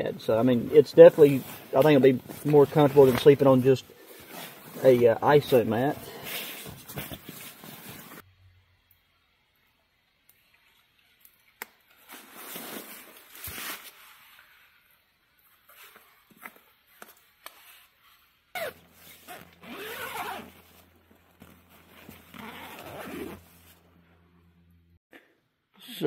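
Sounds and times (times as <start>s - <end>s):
tent fabric rustling: 0.5s - 8.2s, 17.6s - 24.2s
tent zipper pulled: 18.6s - 23.8s.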